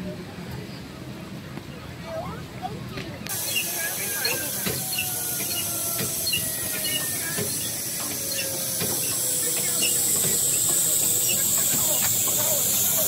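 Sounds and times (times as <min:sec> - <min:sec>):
train passing on track: 0:02.4 - 0:13.0
wheels clacking on rail joints: 0:03.3 - 0:13.0.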